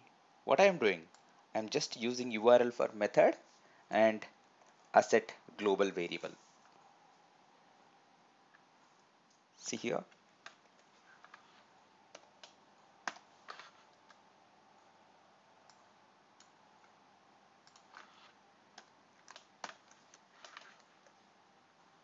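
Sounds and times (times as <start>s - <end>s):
computer keyboard keystrokes: 12.1s - 14.2s, 17.7s - 18.1s, 18.8s - 21.2s.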